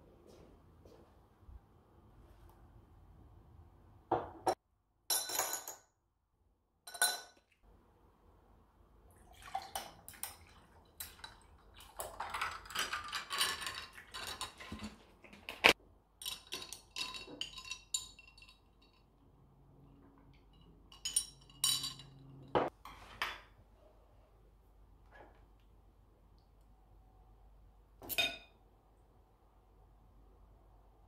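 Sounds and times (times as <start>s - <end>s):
tea pouring into glass: 9.2s - 12.4s.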